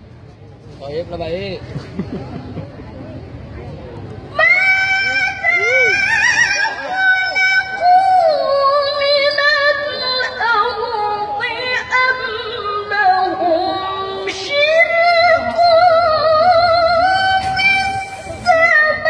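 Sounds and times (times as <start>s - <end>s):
woman reciting melodically: 4.3s - 19.0s.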